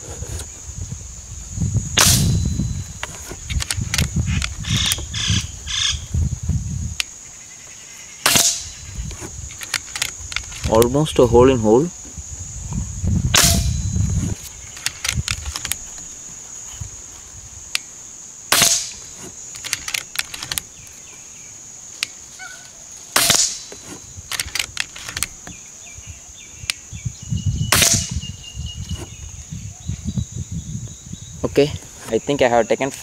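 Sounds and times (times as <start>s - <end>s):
air rifle shots: 2.0s - 2.4s, 8.2s - 8.8s, 13.3s - 13.8s, 18.5s - 20.6s, 23.1s - 23.7s, 27.7s - 28.2s
rifle action clicks: 3.5s - 5.1s, 9.5s - 10.9s, 14.8s - 15.8s, 18.5s - 20.7s, 24.3s - 25.5s.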